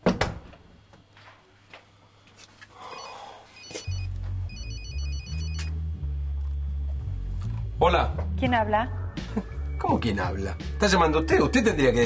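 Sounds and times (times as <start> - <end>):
mobile phone ringtone: 3.0 - 5.7.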